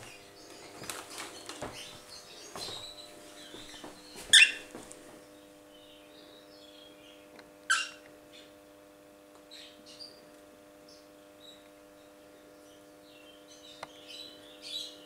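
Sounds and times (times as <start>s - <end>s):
soft bird chirps: 0.1s - 4.7s
cockatiel harsh calls: 4.3s - 4.7s, 7.7s - 8.0s.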